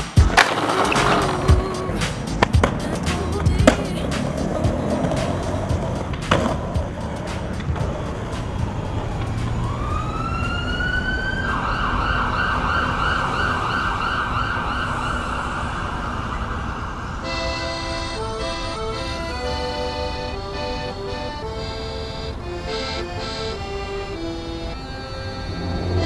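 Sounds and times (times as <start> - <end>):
skateboard knocking on concrete: 0.0 - 9.6
music: 0.0 - 10.0, 17.3 - 26.0
emergency siren wailing: 8.8 - 22.6, 23.2 - 26.0.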